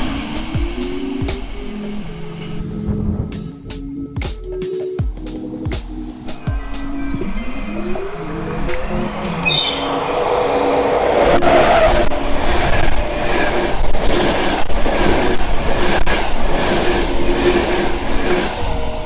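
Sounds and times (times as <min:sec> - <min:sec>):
train wheel and air rush: 0:00.0 - 0:04.1, 0:08.2 - 0:19.0
wheels clacking on rails: 0:08.0 - 0:19.0.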